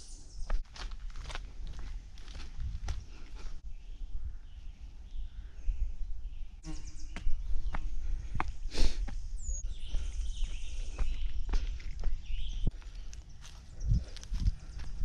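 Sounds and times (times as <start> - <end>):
footsteps crunching on rocky trail: 0.4 - 3.6, 7.1 - 15.0.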